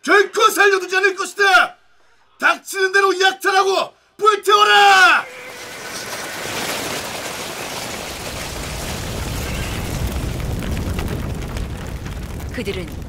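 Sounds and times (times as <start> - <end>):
dense rumbling din: 8.2 - 13.0.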